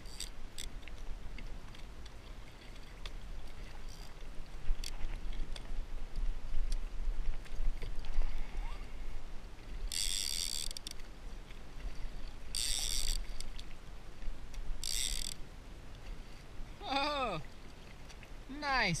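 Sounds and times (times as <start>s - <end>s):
fishing reel ratchet buzzing: 0.0s - 0.7s, 9.9s - 11.0s, 12.5s - 13.5s, 14.8s - 15.4s.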